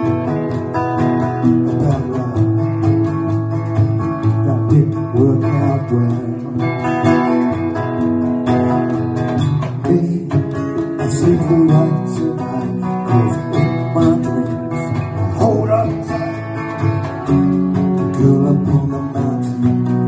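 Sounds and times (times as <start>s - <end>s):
cajon beat: 0.0s - 20.0s
cigar box guitar: 0.0s - 20.0s
strummed acoustic guitar: 0.0s - 20.0s.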